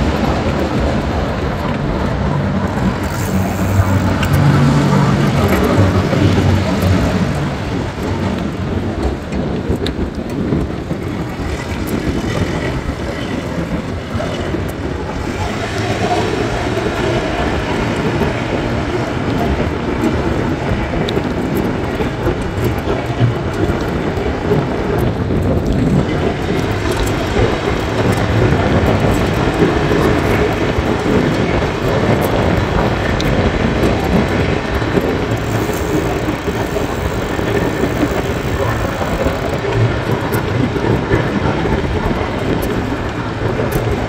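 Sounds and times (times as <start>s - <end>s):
traffic engines and tyres: 0.0s - 44.0s.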